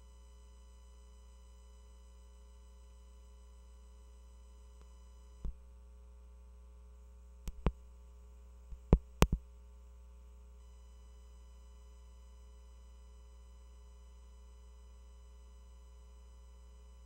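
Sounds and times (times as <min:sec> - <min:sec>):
electrical hum with high whine: 0:00.0 - 0:17.0
handling clicks and taps: 0:07.5 - 0:07.8, 0:08.7 - 0:09.4.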